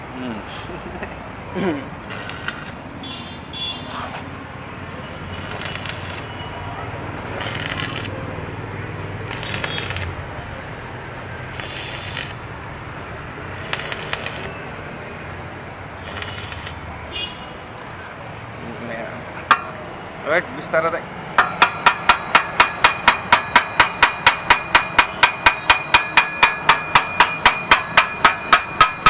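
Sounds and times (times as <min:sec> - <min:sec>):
welding arc crackling: 0:02.0 - 0:02.9, 0:05.2 - 0:14.8, 0:15.8 - 0:16.9.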